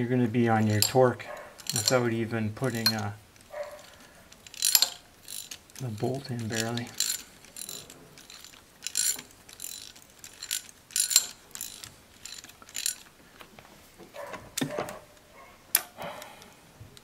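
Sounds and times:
ratchet clicking: 0:00.6 - 0:13.1.

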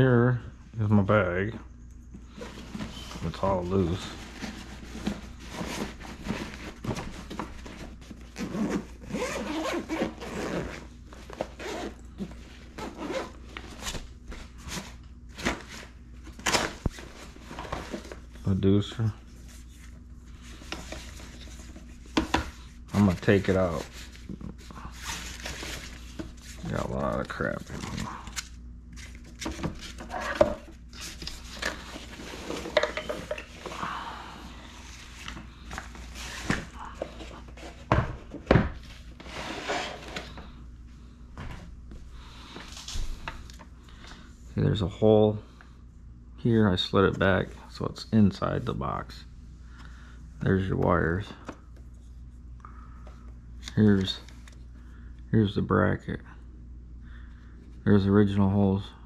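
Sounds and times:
zipper rasping: 0:08.4 - 0:10.9.

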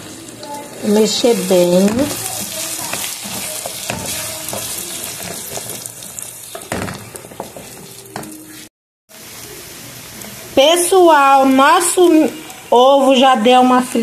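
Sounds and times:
eggs and sausage sizzling: 0:00.0 - 0:14.0
spoon scraping and knocking pot: 0:01.8 - 0:05.9, 0:06.5 - 0:08.4.

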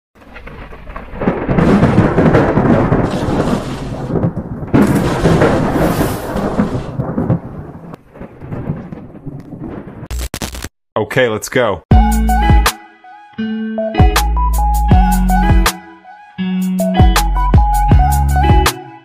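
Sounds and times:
rolling thunder rumbles: 0:00.2 - 0:10.1.

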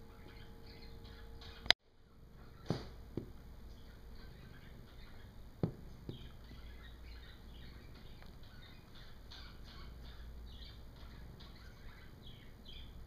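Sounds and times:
tennis balls bouncing on carpet: 0:05.6 - 0:06.3.

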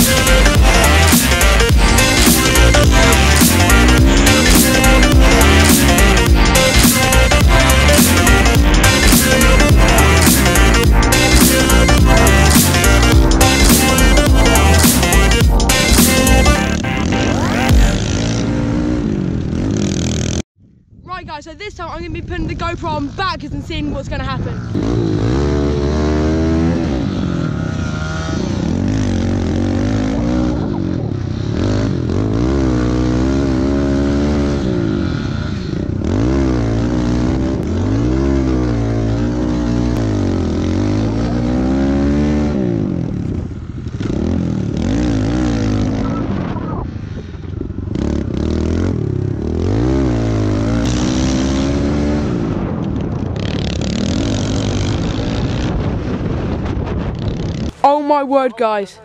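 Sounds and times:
pit bike engines revving: 0:00.0 - 0:20.4, 0:22.5 - 0:55.9.

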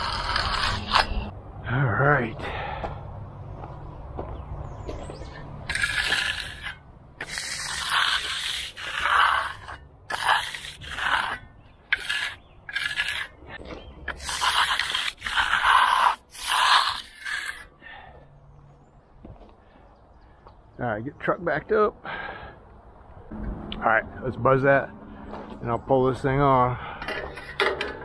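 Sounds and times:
trowel scraping concrete: 0:00.0 - 0:01.3, 0:05.2 - 0:17.8, 0:27.0 - 0:28.0.

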